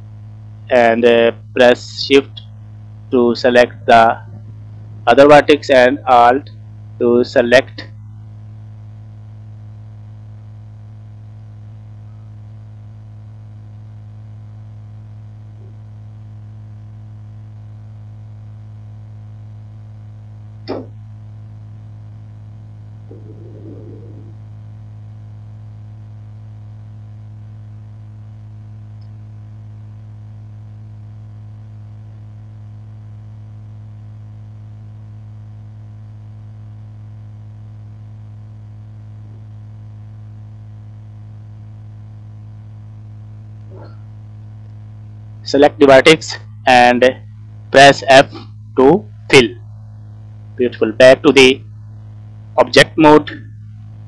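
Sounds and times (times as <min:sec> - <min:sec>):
low electrical hum: 0:00.0 - 0:54.0
sharp click: 0:20.6 - 0:20.9.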